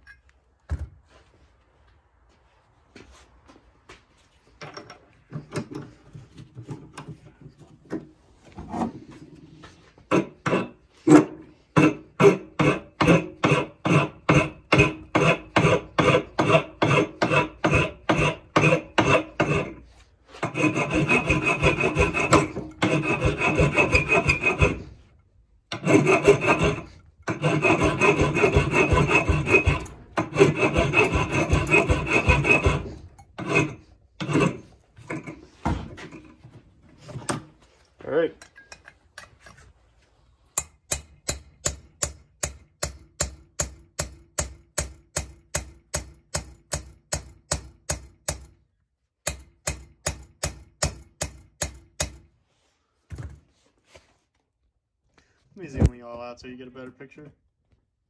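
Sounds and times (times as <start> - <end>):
rasping scraping: 5.3 - 37.9
hammer tapping on metal drift: 10.1 - 19.7, 25.7 - 34.6, 40.6 - 48.5.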